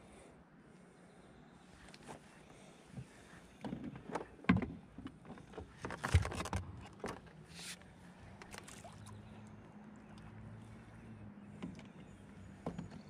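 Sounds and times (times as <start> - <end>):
knocks and rattles on kayak hull: 3.0 - 7.4, 11.5 - 13.0.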